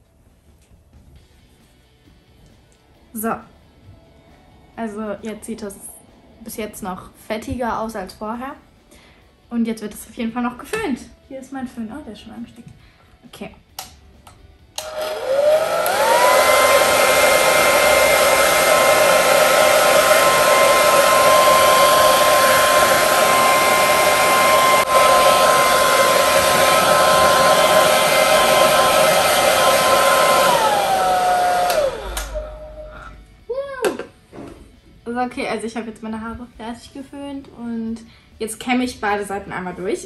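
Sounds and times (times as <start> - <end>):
hair dryer motor whine: 14.8 - 33.3
blowing air rush: 14.8 - 33.4.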